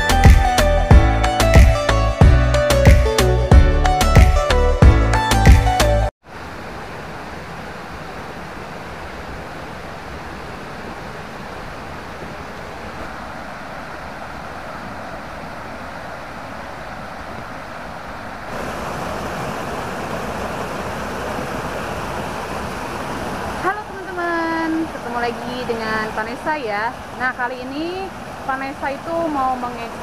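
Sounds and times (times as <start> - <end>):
water rushing in rocky stream: 6.2 - 30.0.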